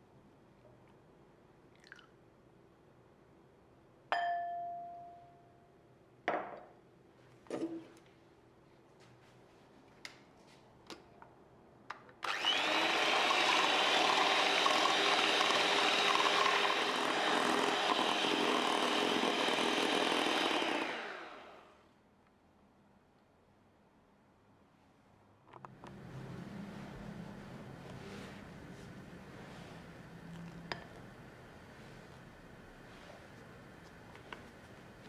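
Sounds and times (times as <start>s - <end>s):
electric hand mixer whipping: 12.2s - 21.7s.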